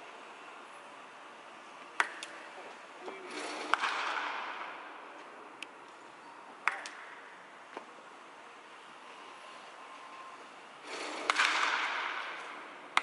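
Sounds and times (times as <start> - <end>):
bat striking baseball: 3.4 - 4.8, 10.9 - 13.0.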